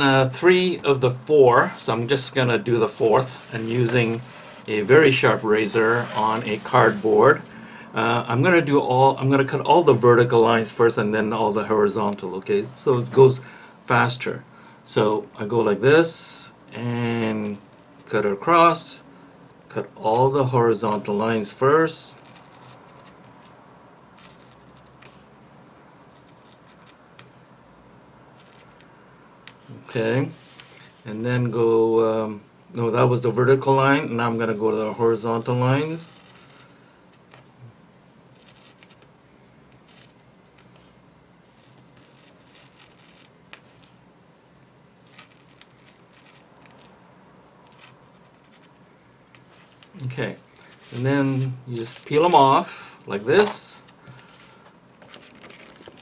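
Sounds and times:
razor blade scratching: 0:02.9 - 0:07.5, 0:22.2 - 0:23.6, 0:24.2 - 0:25.2, 0:38.4 - 0:39.0, 0:39.8 - 0:40.9, 0:41.5 - 0:44.0, 0:45.0 - 0:47.0, 0:47.6 - 0:48.8.

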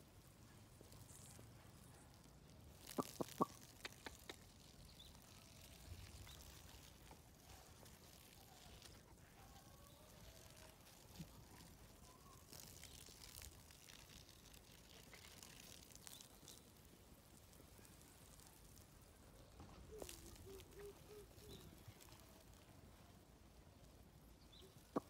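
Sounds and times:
faint rustles and clicks: 0:00.0 - 0:25.0.

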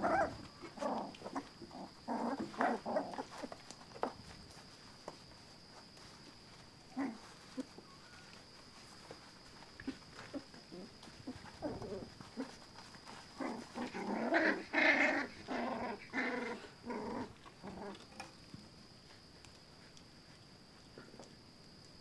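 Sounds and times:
puppies growling and yapping: 0:00.0 - 0:04.1, 0:06.9 - 0:07.8, 0:09.0 - 0:18.2.

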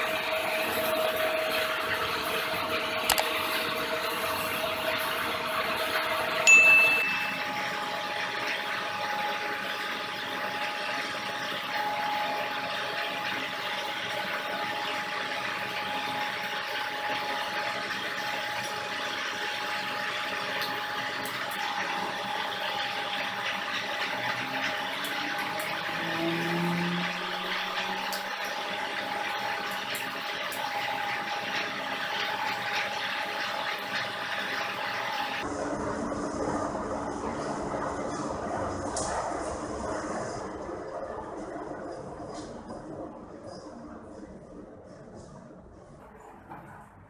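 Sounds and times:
electric motor hum and whine: 0:00.0 - 0:47.0
sharp metallic ding: 0:06.5 - 0:07.7.

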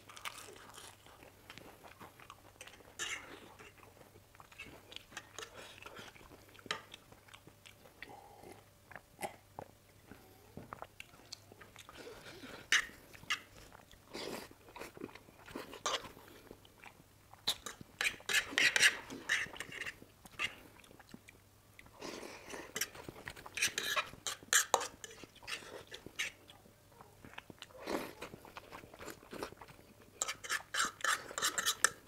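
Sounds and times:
chewing and slurping noodles: 0:27.2 - 0:32.0.

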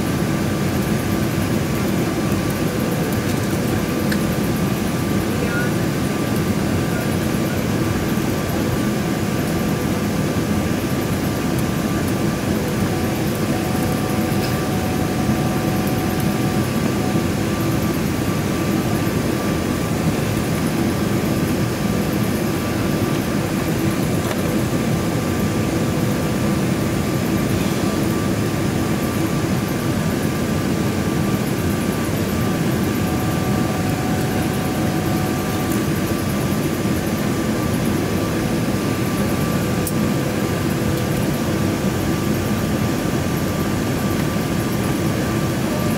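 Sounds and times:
airliner cabin engine rush: 0:00.0 - 0:45.9
faint steady whine: 0:00.0 - 0:45.9.

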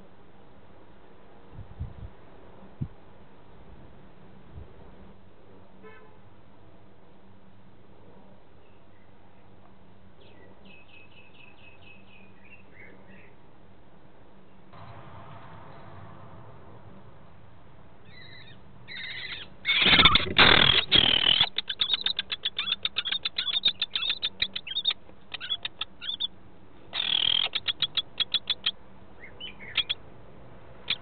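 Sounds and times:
kestrels calling: 0:18.0 - 0:30.0, 0:30.8 - 0:31.0
short chattering bird calls: 0:18.1 - 0:26.3, 0:27.0 - 0:30.0.

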